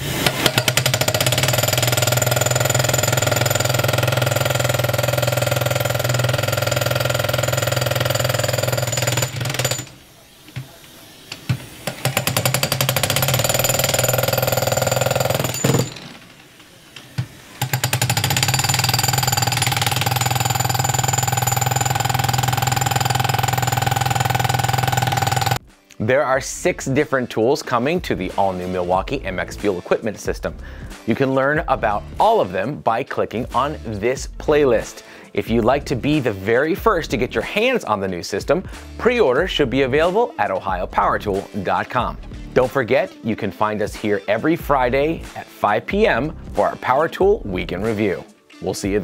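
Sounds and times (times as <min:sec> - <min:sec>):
jackhammer hammering concrete: 0:00.0 - 0:10.0, 0:11.8 - 0:16.2, 0:17.6 - 0:25.6.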